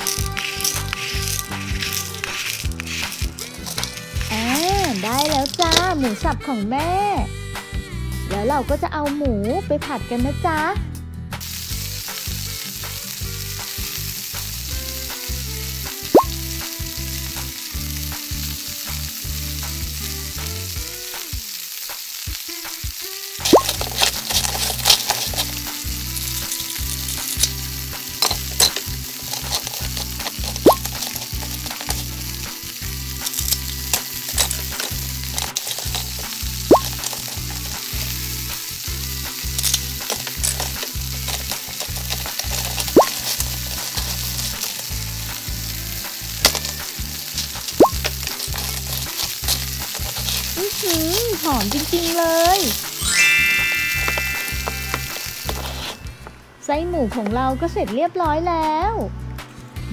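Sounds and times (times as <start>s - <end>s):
plastic spatula scraping toy pan: 0.0s - 6.0s, 23.4s - 27.6s, 28.2s - 32.2s, 33.2s - 38.2s, 39.4s - 45.0s, 46.4s - 53.0s, 54.1s - 56.0s
frying sizzle: 0.0s - 10.7s, 11.3s - 58.0s.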